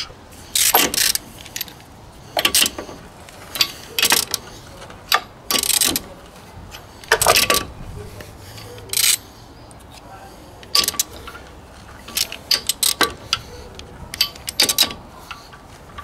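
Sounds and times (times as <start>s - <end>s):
socket wrench clicking: 8.8s - 9.2s, 10.7s - 11.4s.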